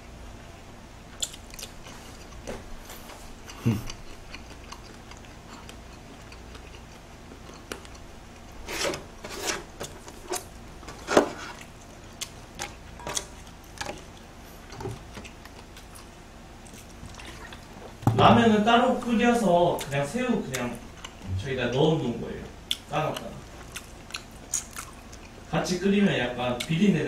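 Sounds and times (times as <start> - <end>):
chewing: 1.1 - 8.7, 11.4 - 18.0, 19.7 - 21.3, 22.6 - 25.5.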